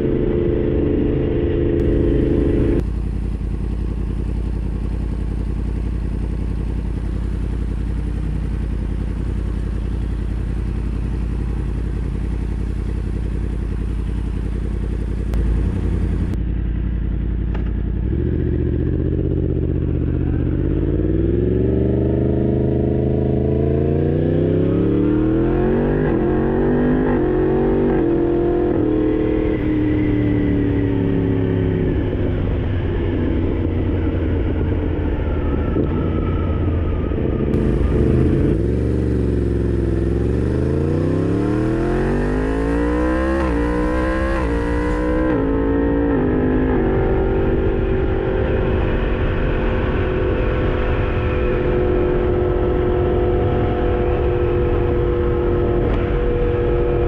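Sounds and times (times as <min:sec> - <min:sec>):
motorcycle accelerating hard: 0:00.0 - 0:02.9, 0:17.5 - 0:57.0.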